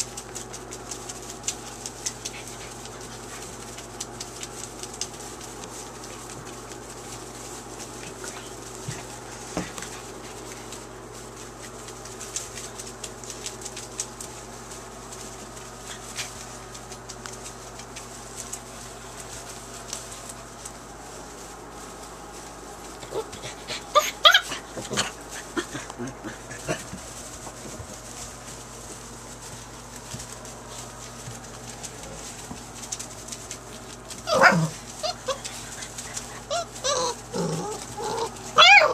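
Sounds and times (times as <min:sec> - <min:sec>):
puppies scrabbling in wood shavings: 0:00.0 - 0:38.9
puppies yelping and whimpering: 0:23.2 - 0:24.7, 0:34.2 - 0:38.9.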